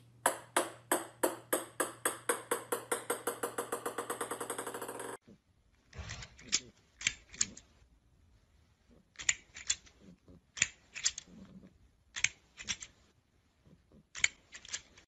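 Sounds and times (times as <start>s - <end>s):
plastic grabber toy clacking: 9.2s - 9.9s, 10.6s - 11.3s.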